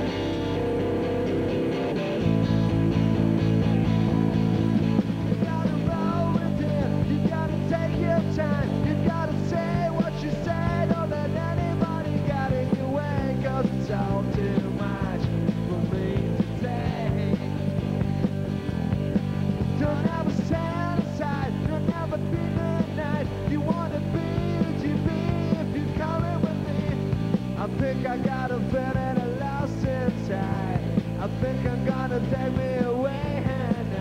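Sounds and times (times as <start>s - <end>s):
bass guitar: 0.0s - 34.0s
drums with cymbals: 0.0s - 34.0s
electric guitar: 0.0s - 34.0s
man singing: 5.2s - 17.8s, 19.6s - 34.0s.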